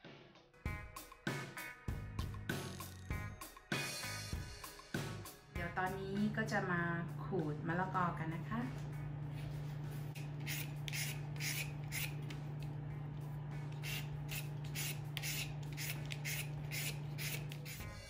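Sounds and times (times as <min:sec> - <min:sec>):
steady low hum: 0:07.0 - 0:18.0
papaya shredder rasping strokes: 0:10.2 - 0:12.6, 0:13.6 - 0:18.0.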